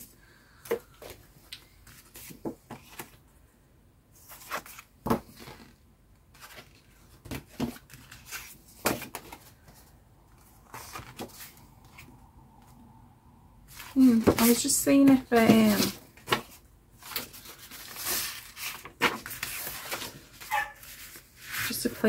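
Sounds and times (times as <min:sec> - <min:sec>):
paper and card rustling: 0:00.7 - 0:03.2, 0:04.2 - 0:12.1, 0:13.7 - 0:22.0.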